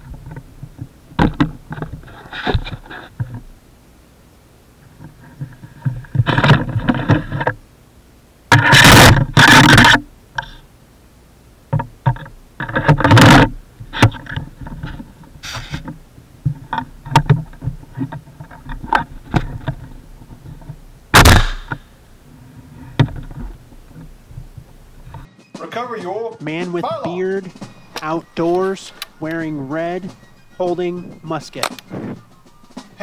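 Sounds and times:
musket clicks and scrapes: 0:01.2 - 0:03.4, 0:05.0 - 0:07.6, 0:08.5 - 0:10.6, 0:11.8 - 0:21.9, 0:31.6 - 0:32.2.

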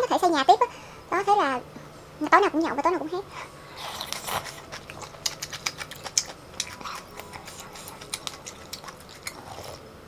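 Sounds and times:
slurping noodles: 0:03.8 - 0:09.8
wet chewing mouth sounds: 0:03.8 - 0:09.8.

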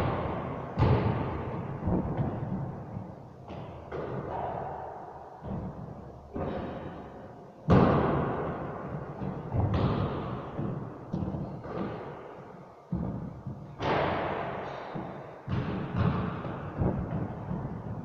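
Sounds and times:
basketball hitting backboard and rim: 0:00.0 - 0:02.7, 0:03.5 - 0:04.6, 0:07.7 - 0:12.1, 0:13.8 - 0:18.0.

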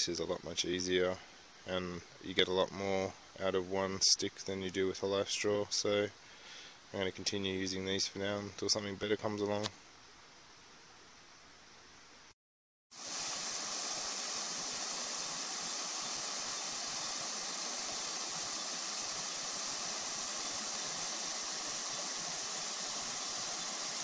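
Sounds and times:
creek water flowing: 0:12.9 - 0:24.0.

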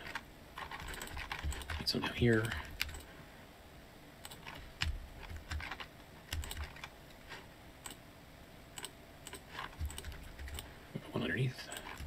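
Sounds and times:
keyboard key presses: 0:00.0 - 0:03.1, 0:04.2 - 0:06.9, 0:08.8 - 0:10.7.

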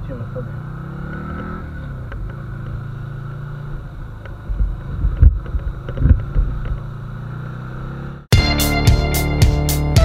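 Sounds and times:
motorcycle engine cruising: 0:00.0 - 0:10.0.

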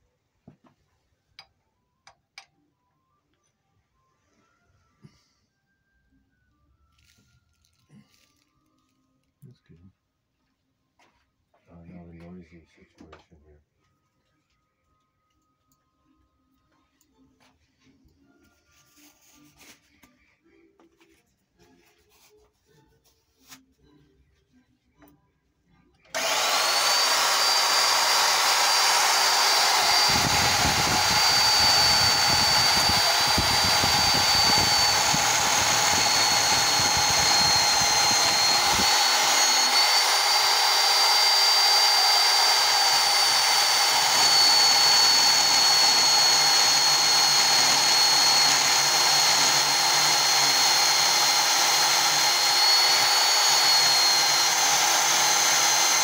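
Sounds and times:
band saw whining: 0:26.1 - 0:56.0.

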